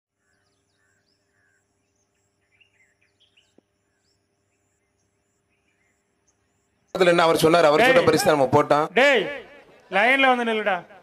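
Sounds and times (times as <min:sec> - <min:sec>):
faint bird chirps: 0:00.1 - 0:07.1.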